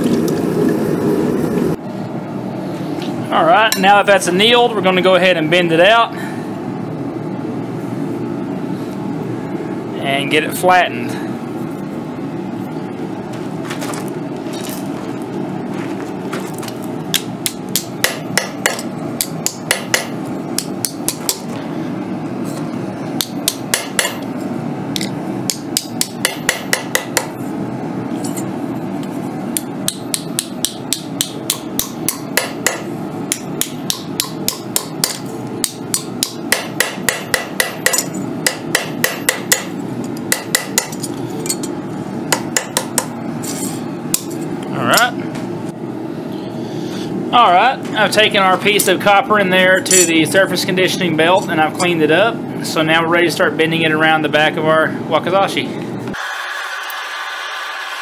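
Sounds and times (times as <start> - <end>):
steady low hum: 0.0 - 56.2
hammer striking metal: 17.1 - 21.5, 23.2 - 24.3, 25.0 - 27.4, 29.9 - 41.7, 42.3 - 43.1.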